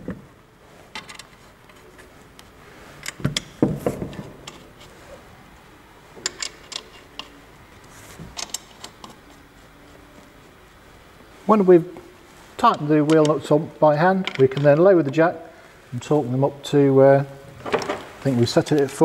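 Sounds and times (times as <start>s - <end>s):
metallic clicks of wheel nuts: 3.0s - 4.7s, 6.2s - 7.3s, 8.4s - 9.2s.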